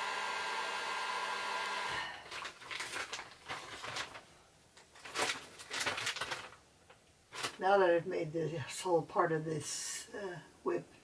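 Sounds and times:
hot-air gun whining: 0.0s - 2.2s.

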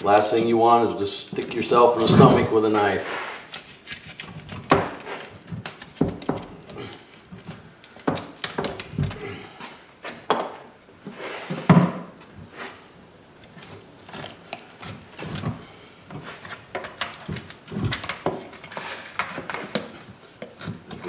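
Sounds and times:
tools scraping bone: 3.2s - 7.2s, 13.5s - 15.6s, 18.4s - 21.0s.

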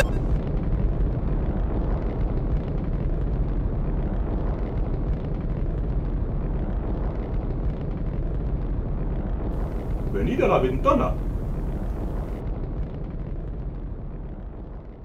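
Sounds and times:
rocket engine rumble: 0.0s - 15.0s.

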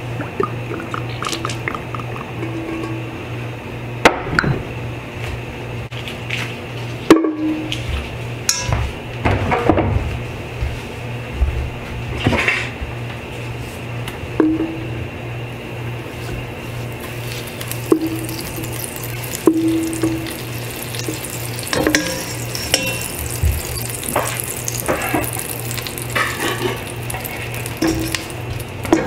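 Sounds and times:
steady low hum: 0.0s - 29.0s
utensils knocking on a pot: 8.5s - 8.8s, 17.8s - 29.0s.

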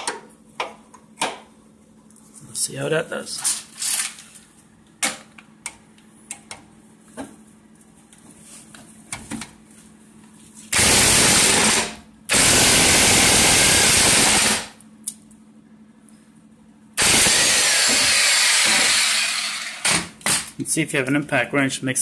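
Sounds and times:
impact wrench hammering: 10.8s - 14.7s, 17.0s - 20.5s.

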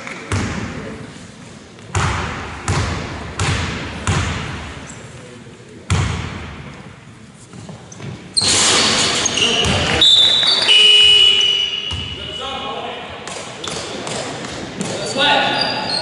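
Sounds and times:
basketball bouncing on hardwood floor: 1.9s - 4.5s.

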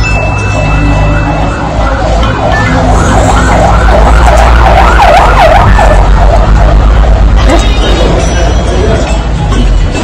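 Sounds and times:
siren yelping: 0.0s - 7.6s.

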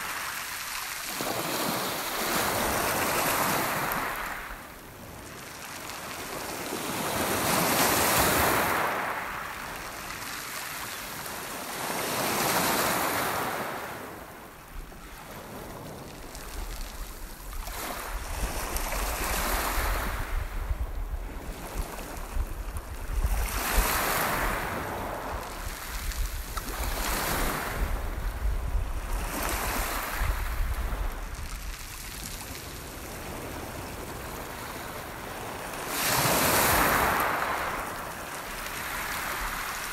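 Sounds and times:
waves breaking on pebble beach: 0.0s - 39.9s
wind buffeting microphone: 14.9s - 32.0s.

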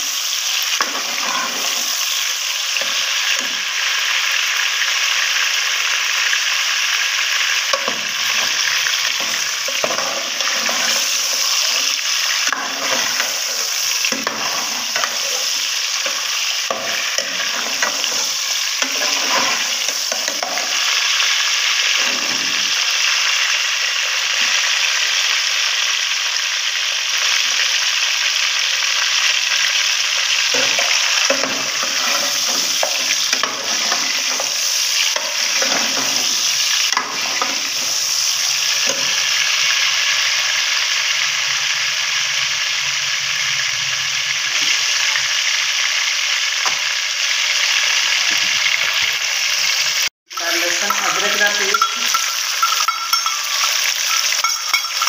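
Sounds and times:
chicken sizzling in hot oil: 0.0s - 55.0s
ladle scraping and knocking pot: 7.8s - 20.8s, 30.5s - 36.4s, 50.8s - 55.0s.

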